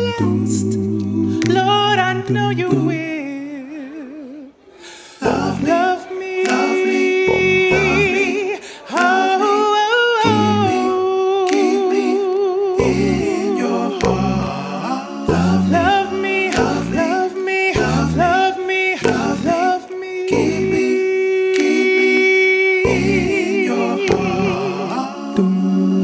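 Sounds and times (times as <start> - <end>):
man singing into microphone: 5.2 - 13.0.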